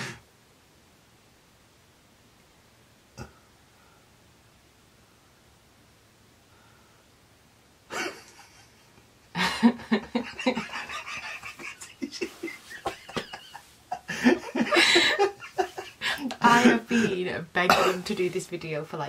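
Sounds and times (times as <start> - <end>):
man and woman laughing: 7.9 - 17.2.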